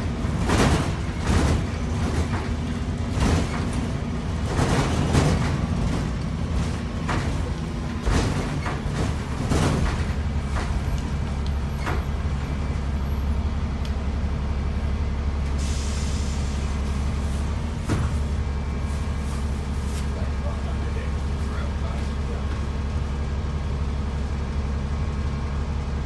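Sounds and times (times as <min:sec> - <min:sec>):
rattles and knocks of bus body: 0:00.0 - 0:13.1, 0:16.7 - 0:23.1
bus engine drone: 0:00.0 - 0:26.0.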